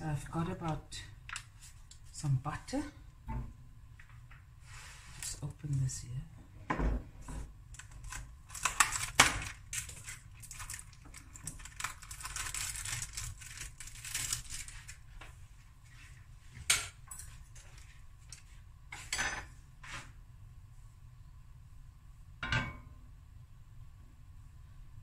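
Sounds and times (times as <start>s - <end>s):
kitchenware knocks and clinks: 19.0s - 19.5s, 22.4s - 22.9s.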